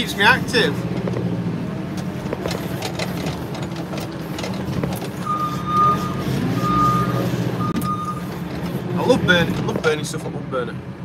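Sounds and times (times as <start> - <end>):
diesel engine running: 0.0 - 11.0
reversing alarm beeping: 5.2 - 8.2.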